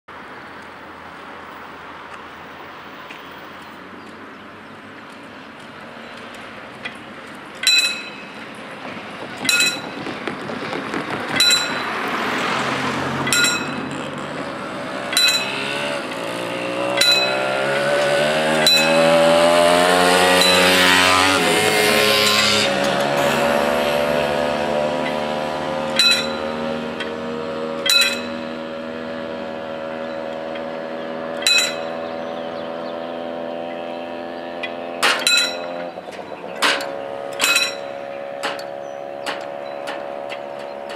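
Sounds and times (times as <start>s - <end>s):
vehicle engine: 0.1s - 40.9s
level-crossing warning bell: 7.6s - 8.5s, 9.4s - 10.0s, 11.4s - 12.0s, 13.2s - 14.0s, 15.1s - 15.8s, 16.9s - 17.8s, 18.6s - 19.2s, 20.3s - 21.2s, 25.9s - 26.9s, 27.8s - 28.6s, 31.4s - 32.0s, 35.2s - 36.0s, 37.3s - 38.7s.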